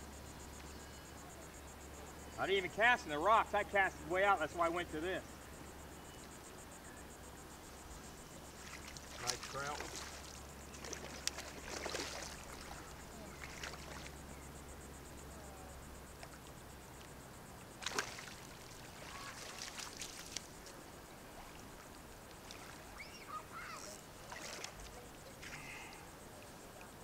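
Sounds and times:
water trickling and sloshing: 7.8 - 14.6, 16.0 - 27.0
water splashing: 8.4 - 14.3, 16.1 - 26.9.

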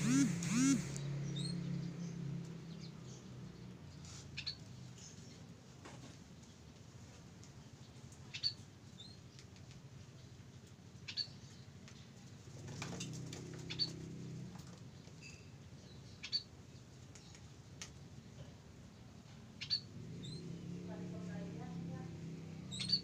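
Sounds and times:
high-pitched bird calls: 0.0 - 1.9, 15.2 - 16.5, 19.6 - 20.5, 22.7 - 23.0.

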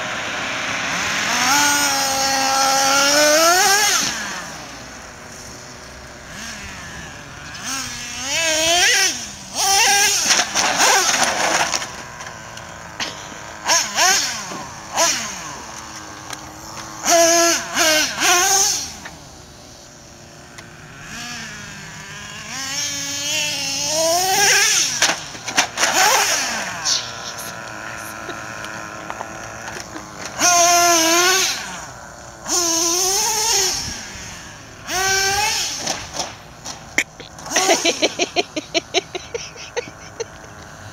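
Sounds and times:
nitro engine revving: 0.0 - 40.9.

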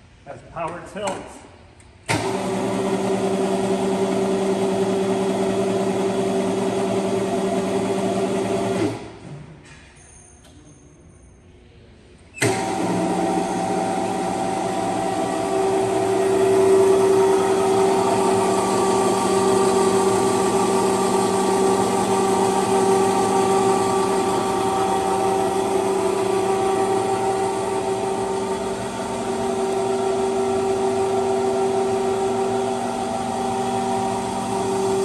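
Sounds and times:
electric motor humming and whining: 12.4 - 35.0.

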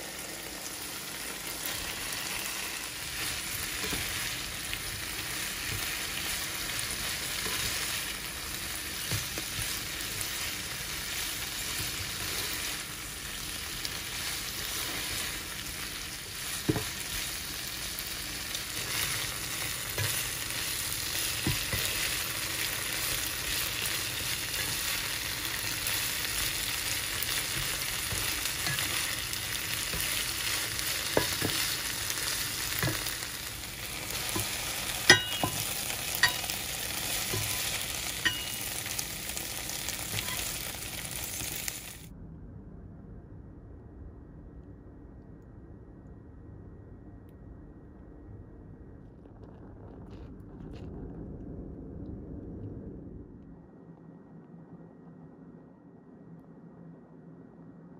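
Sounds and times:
food sizzling in a frying pan: 0.0 - 42.1
spatula scraping a pan: 2.2 - 8.2, 14.0 - 39.0, 40.0 - 40.6
spatula tapping a pan: 16.6 - 17.2, 19.9 - 22.2, 27.2 - 33.2, 34.1 - 38.8.

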